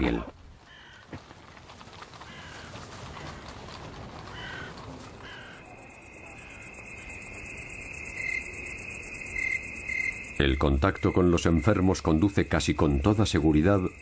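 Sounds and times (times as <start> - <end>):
bird caws: 0.6 - 1.2, 2.2 - 3.5, 4.3 - 5.8, 6.4 - 6.8
pulsing insect trill: 5.3 - 14.0.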